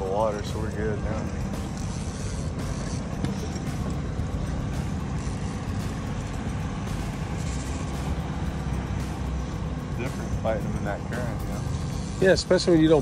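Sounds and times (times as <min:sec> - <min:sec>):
boat motor running: 0:00.0 - 0:13.0
water noise: 0:00.0 - 0:13.0
wind: 0:00.0 - 0:13.0.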